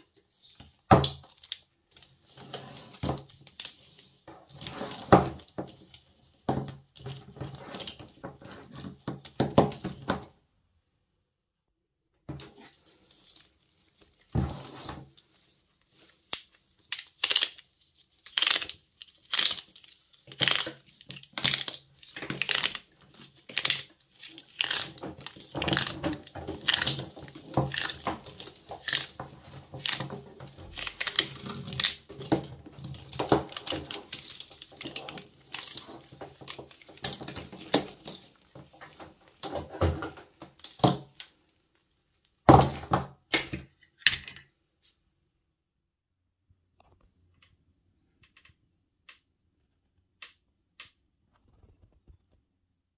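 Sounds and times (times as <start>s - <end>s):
plastic cable wrap rustling: 12.6s - 42.5s.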